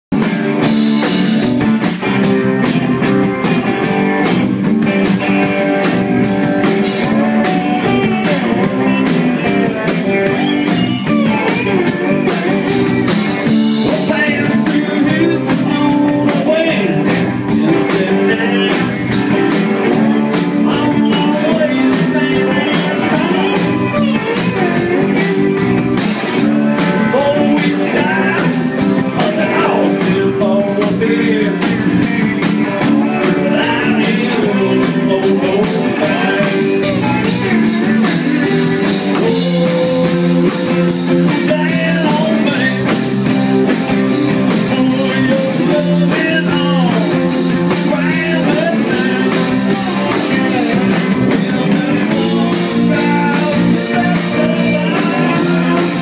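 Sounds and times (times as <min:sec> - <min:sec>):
drum kit beat: 0:00.1 - 0:56.0
electric guitars: 0:00.1 - 0:56.0.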